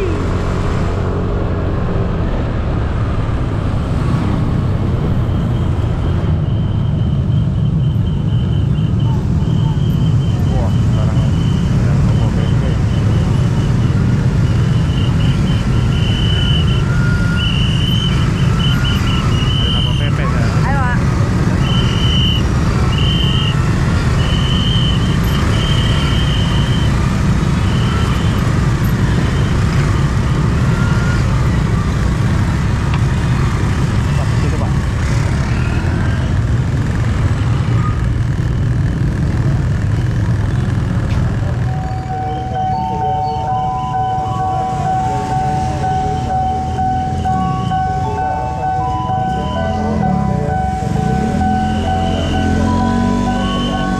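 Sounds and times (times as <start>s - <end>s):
street traffic rumble: 0.0s - 53.9s
motorbike engines idling: 7.2s - 53.9s
motor scooter engine running: 35.7s - 42.8s.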